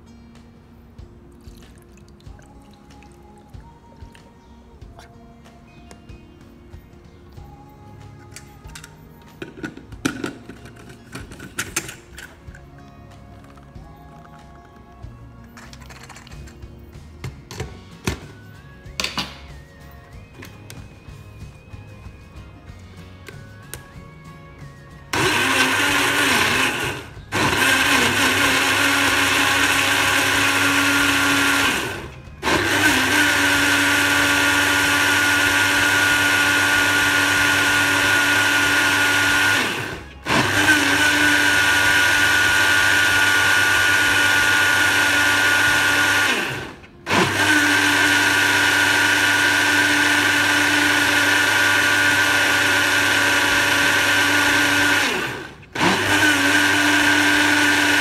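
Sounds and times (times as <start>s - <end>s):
blender motor whine: 25.1s - 58.0s.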